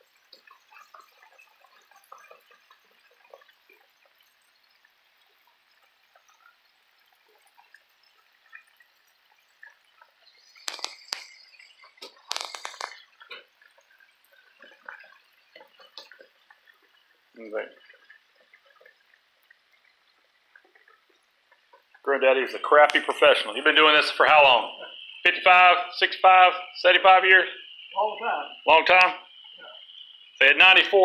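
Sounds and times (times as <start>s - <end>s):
fish deep-frying in oil: 0.0s - 31.0s
sharp crackle or clatter: 10.3s - 16.4s.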